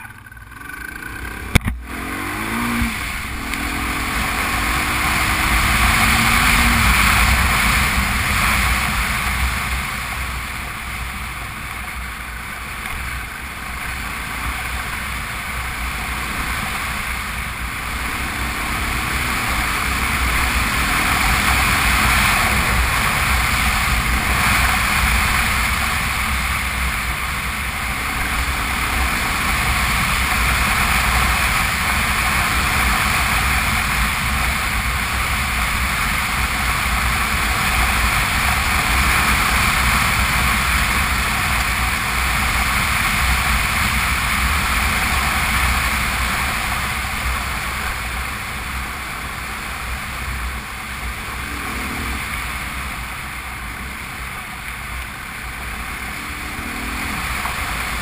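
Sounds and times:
motorcycle engine: 0.0s - 58.0s
wind rush and tyre noise: 1.1s - 58.0s.

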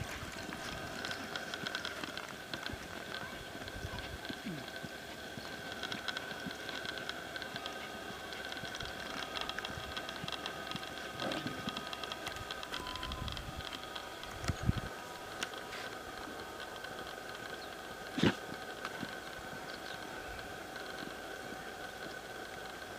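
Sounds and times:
horse hoofbeats on dirt: 0.0s - 22.9s
patter of small clicks: 0.4s - 16.0s.

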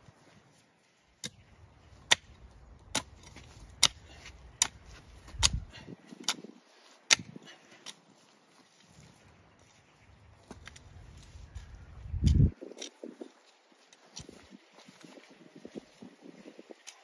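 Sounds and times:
hoe chopping into dry soil: 1.2s - 1.4s, 2.0s - 8.0s.

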